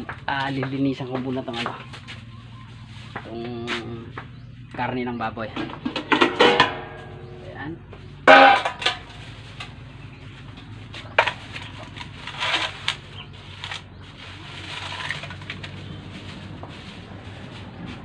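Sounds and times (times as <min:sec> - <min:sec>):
plastic bag crinkling: 0:10.9 - 0:18.0.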